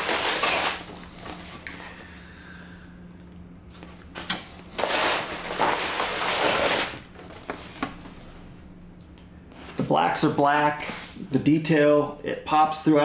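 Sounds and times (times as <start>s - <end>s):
wrapping rustling: 0.0s - 1.6s.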